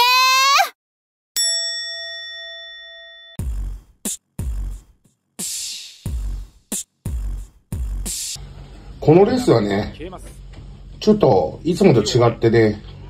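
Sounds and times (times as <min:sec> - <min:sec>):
chime ding: 0:01.4 - 0:03.4
looping drum beat: 0:03.4 - 0:08.4.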